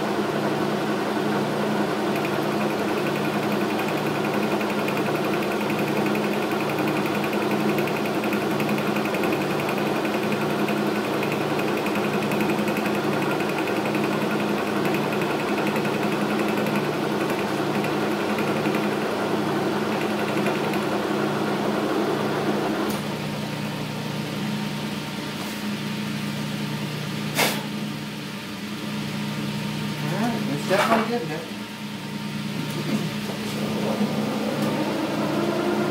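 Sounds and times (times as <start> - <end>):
metal lathe gear hum: 0.0 - 24.6.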